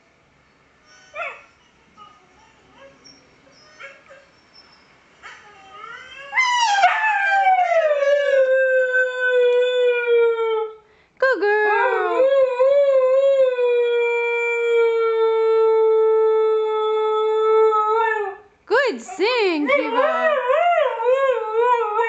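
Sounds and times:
dog whining: 0.8s - 8.5s, 19.6s - 20.6s
dog howling: 5.4s - 10.8s, 11.6s - 18.4s, 19.7s - 22.0s.

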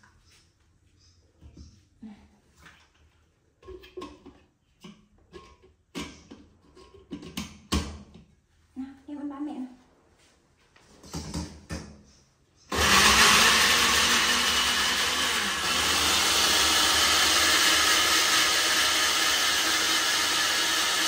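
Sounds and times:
blender motor running: 12.7s - 21.0s.

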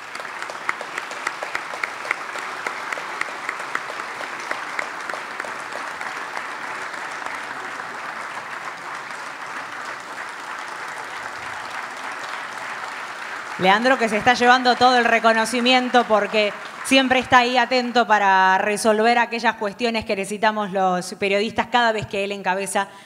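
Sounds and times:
audience applauding: 0.0s - 18.4s.

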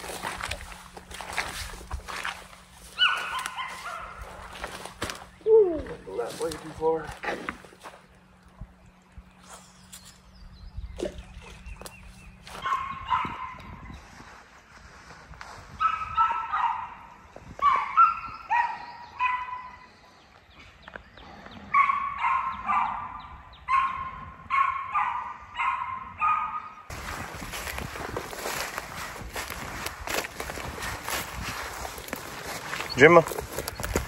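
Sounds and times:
dog barking: 3.0s - 4.4s, 12.6s - 13.8s, 15.8s - 19.8s, 21.7s - 26.8s.

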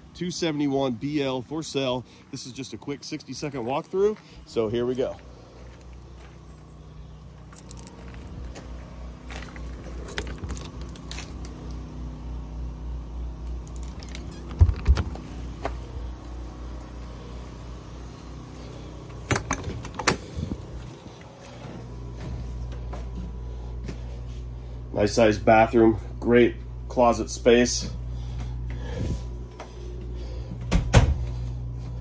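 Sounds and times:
keys jangling: 7.5s - 8.3s, 9.3s - 11.9s, 13.5s - 15.0s.

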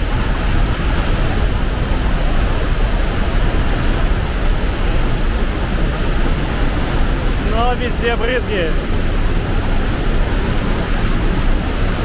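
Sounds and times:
heavy waterfall rushing: 0.0s - 12.0s.

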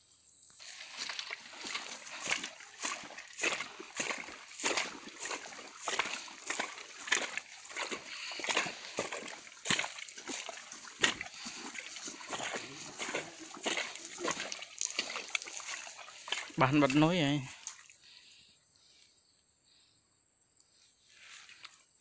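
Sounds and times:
footsteps on dry grass: 0.6s - 17.7s.

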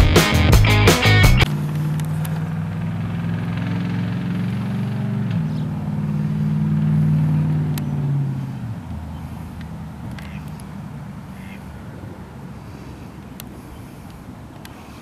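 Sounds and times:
string trimmer engine idling: 1.4s - 4.6s.

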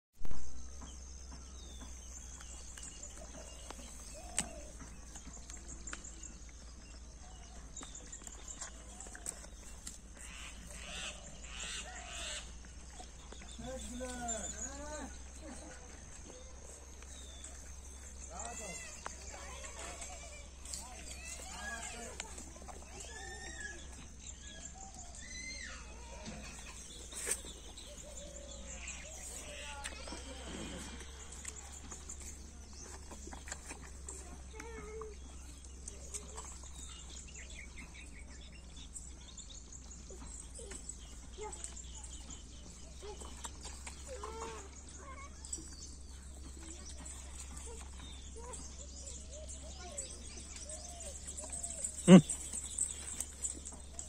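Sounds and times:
puppies whimpering: 40.1s - 54.0s.

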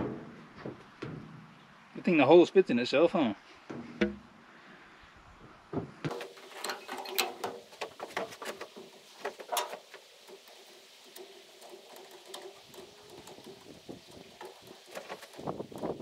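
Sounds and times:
hose clicks taps and rubbing: 3.6s - 4.3s, 5.7s - 16.0s.

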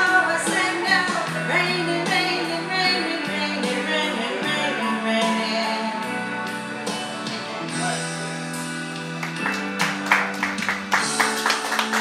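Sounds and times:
hand clapping: 9.0s - 12.0s.

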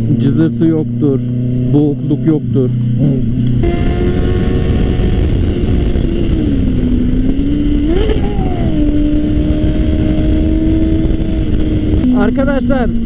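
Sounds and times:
motorcycle engine at speed: 0.0s - 13.0s
wind rush: 3.2s - 13.0s.

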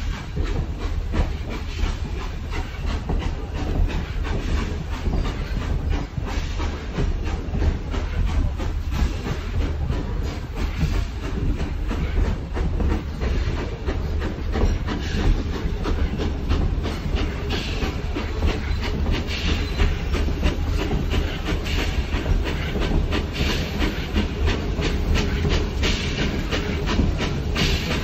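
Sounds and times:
low train rumble: 0.0s - 28.0s
train wheels clicking over rail joints: 0.0s - 28.0s.

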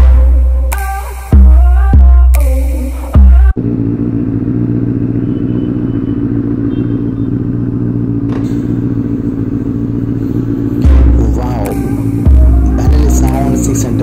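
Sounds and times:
motorcycle engine idling: 3.2s - 14.0s.

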